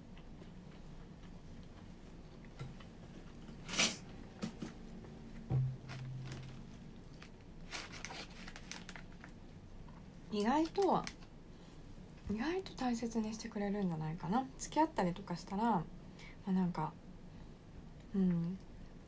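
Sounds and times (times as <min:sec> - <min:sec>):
low room hum: 0:00.0 - 0:19.0
chewing: 0:00.1 - 0:03.5.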